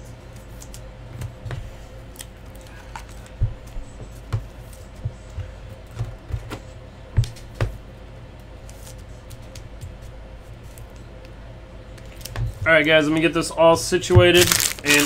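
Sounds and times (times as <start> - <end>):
faint steady hum: 0.0 - 15.0
plastic sleeves crinkling: 14.3 - 15.0.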